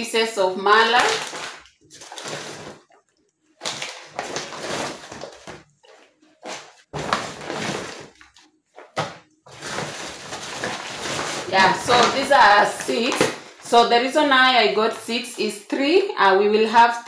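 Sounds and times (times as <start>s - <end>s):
plastic packaging rustling: 0.7s - 14.1s.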